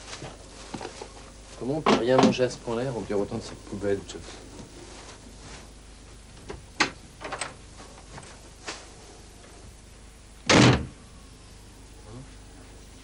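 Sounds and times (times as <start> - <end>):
loud thump: 10.5 - 11.0.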